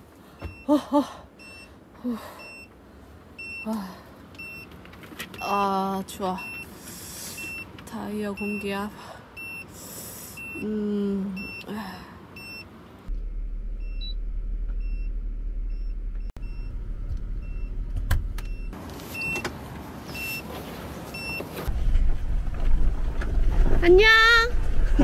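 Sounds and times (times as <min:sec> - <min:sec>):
vehicle warning chime beeping: 0:01.4 - 0:02.8, 0:03.4 - 0:03.7, 0:04.4 - 0:04.7, 0:05.4 - 0:10.7, 0:11.3 - 0:11.8, 0:12.4 - 0:12.7, 0:18.4 - 0:19.5, 0:20.1 - 0:20.5, 0:21.1 - 0:21.5
low hum: 0:13.0 - 0:18.8, 0:21.7 - 0:25.0.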